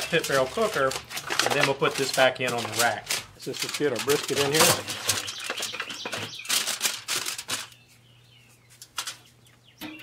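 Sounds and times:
foil crinkling: 0.0 - 7.9.

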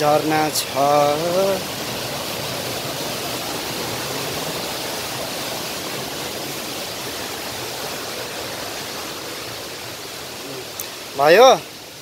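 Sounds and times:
waterfall over rocks: 0.0 - 12.0.

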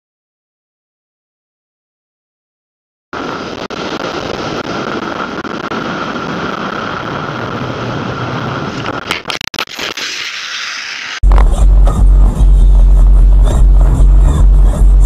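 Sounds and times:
motorcycle engine droning: 11.2 - 15.0.

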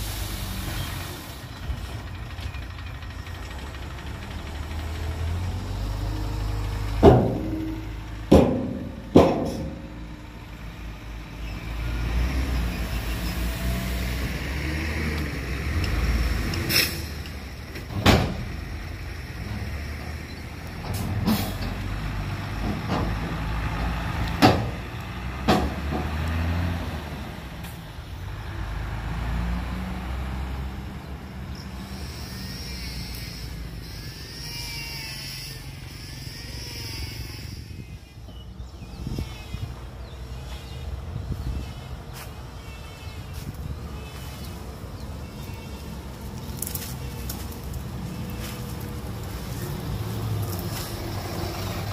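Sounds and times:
diesel truck engine running: 0.0 - 33.9, 43.2 - 51.9
sharp knocks and bangs: 6.9 - 10.1, 24.4 - 24.8, 25.4 - 26.2.

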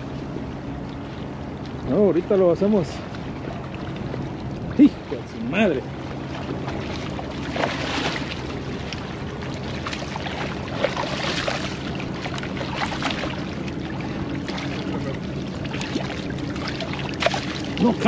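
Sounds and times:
low hum: 0.0 - 18.0
fish splashing in water: 6.3 - 18.0.

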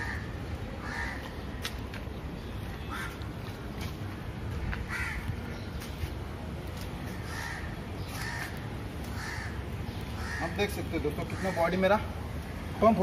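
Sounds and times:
crows cawing: 0.0 - 1.5, 2.9 - 3.2, 4.9 - 5.4, 7.1 - 12.1.

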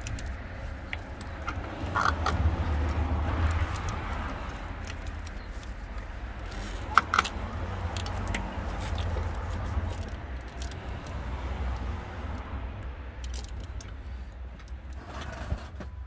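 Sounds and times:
hand rustling among wiring: 0.0 - 12.0
steady low rumble: 0.0 - 15.0.

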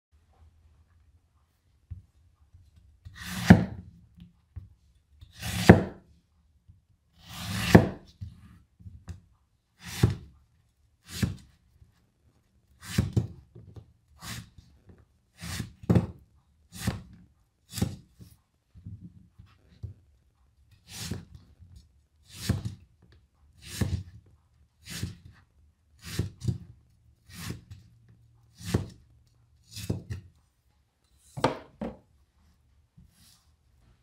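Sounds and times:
cleaver slicing orange: 7.2 - 8.0
cleaver knocking wooden board: 31.4 - 32.0.

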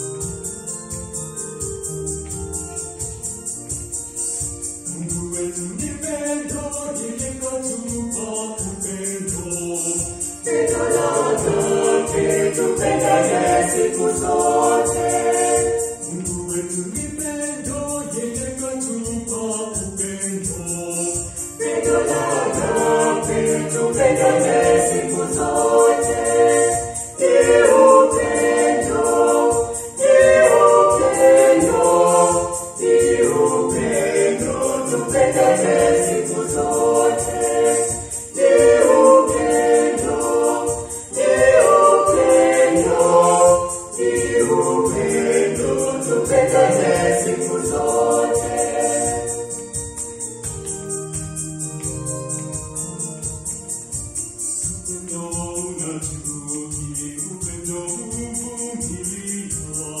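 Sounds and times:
electronic keyboard: 0.0 - 5.2, 21.2 - 54.9
choir singing a hymn: 4.9 - 50.0.

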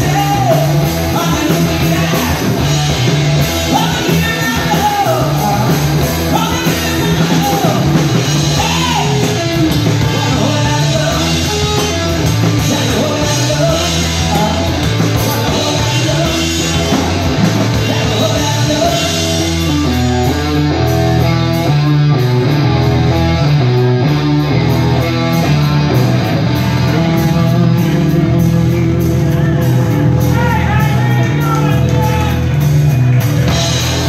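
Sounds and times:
man singing into a microphone: 0.0 - 2.7, 3.7 - 19.5
drum kit: 0.0 - 34.0
electric guitars: 0.0 - 34.0.

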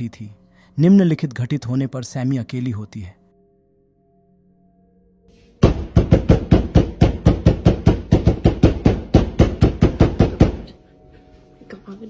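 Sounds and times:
hard pounding on a door: 5.6 - 10.7.

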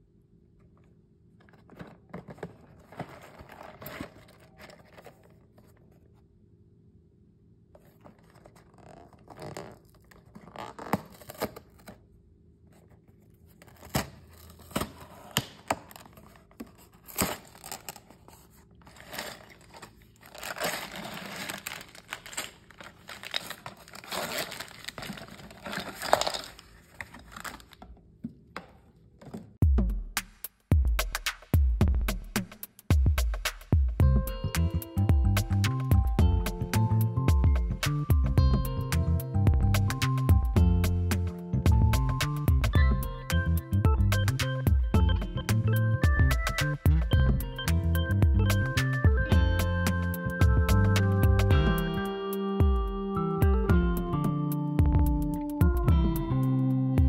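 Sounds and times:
plastic bags rustling: 1.7 - 5.6, 13.7 - 27.8
cardboard box tearing open: 8.4 - 12.0, 13.6 - 27.8.

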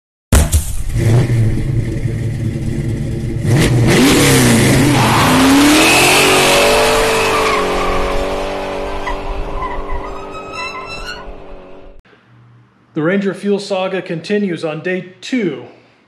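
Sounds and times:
car engine revving: 0.5 - 12.0.

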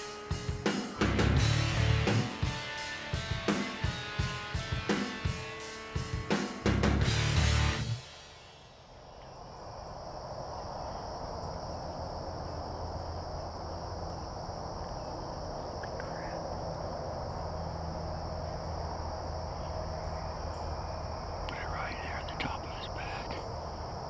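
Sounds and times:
crickets chirping: 0.0 - 6.7, 7.3 - 24.0.

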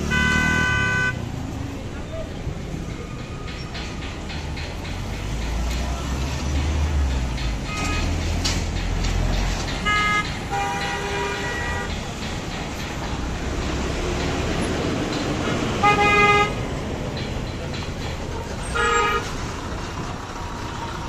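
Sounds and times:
vehicle horns honking: 0.0 - 1.3, 7.7 - 8.2, 9.8 - 12.0, 15.8 - 16.6, 18.6 - 19.3
engines and passing traffic: 0.0 - 21.0.

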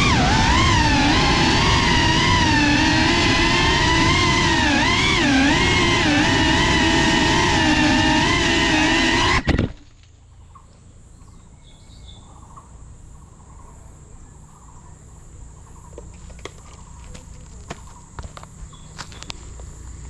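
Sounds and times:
high insect hum: 9.8 - 20.0
insects chirping: 9.9 - 20.0.

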